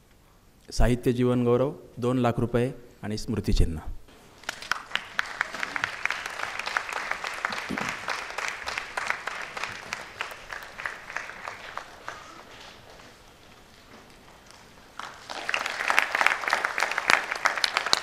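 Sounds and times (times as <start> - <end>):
audience applauding: 4.4 - 18.0.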